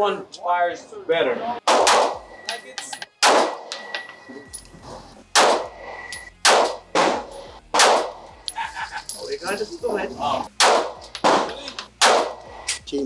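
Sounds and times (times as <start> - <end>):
pistol shots with echo: 1.6 - 2.3, 3.2 - 3.8, 5.4 - 5.8, 6.4 - 8.3, 10.5 - 12.4.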